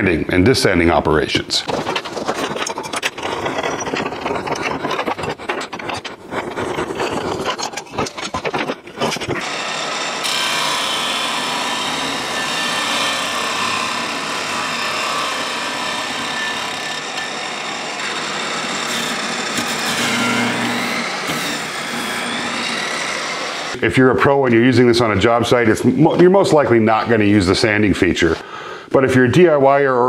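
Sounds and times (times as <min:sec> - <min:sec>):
scraping clicks: 0:01.6 - 0:09.4
table saw motor running: 0:09.4 - 0:23.8.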